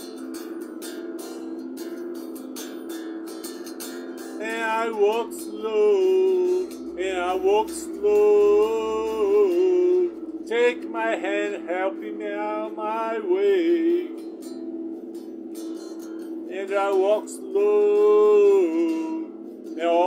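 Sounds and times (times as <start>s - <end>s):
strummed electric guitar: 0.0s - 20.0s
man singing held notes: 4.4s - 14.2s, 16.5s - 20.0s.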